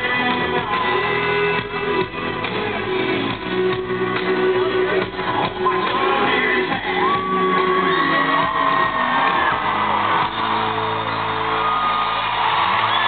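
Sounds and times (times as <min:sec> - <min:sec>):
crowd cheering and whooping: 0:04.9 - 0:13.0.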